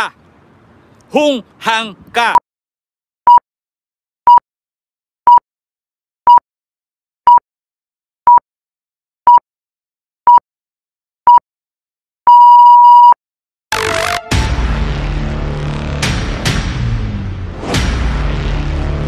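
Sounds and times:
electronic countdown beeps: 0:12.3 - 0:13.2.

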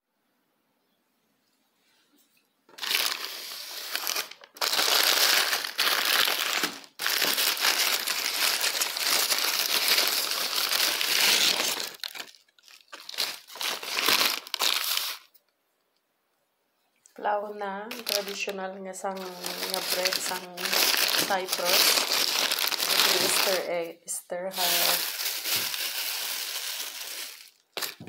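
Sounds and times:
paper bag crinkling: 0:02.7 - 0:15.3, 0:17.9 - 0:23.9, 0:24.5 - 0:28.0.

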